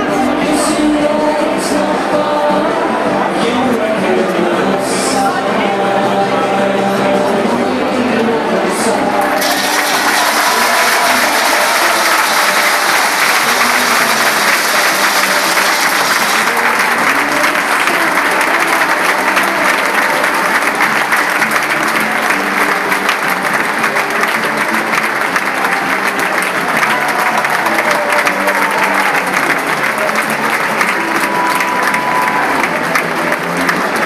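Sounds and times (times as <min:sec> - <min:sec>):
music playing: 0:00.0 - 0:34.0
crowd applauding: 0:08.9 - 0:34.0.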